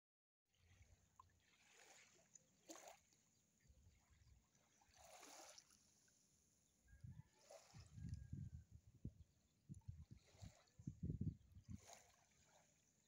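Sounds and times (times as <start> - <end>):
small waves lapping: 0.5 - 13.0
wind rumble on microphone: 6.9 - 12.6.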